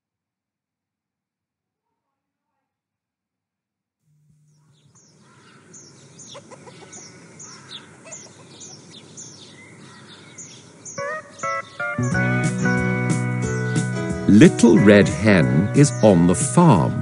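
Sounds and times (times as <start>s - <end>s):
birds chirping: 4.3s - 17.0s
chickens clucking: 4.6s - 12.8s.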